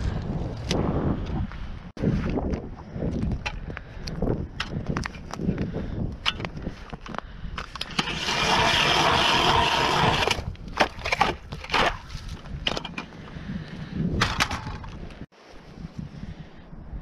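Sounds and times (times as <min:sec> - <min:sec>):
knocks and clunks on ice: 0:06.2 - 0:13.2, 0:14.2 - 0:15.2
ice auger grinding through ice: 0:07.7 - 0:12.1.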